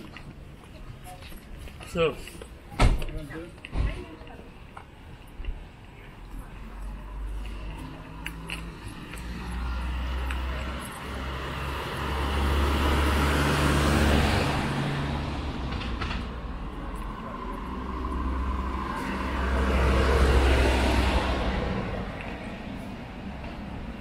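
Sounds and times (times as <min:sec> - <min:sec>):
cars driving past: 0:05.8 - 0:24.0.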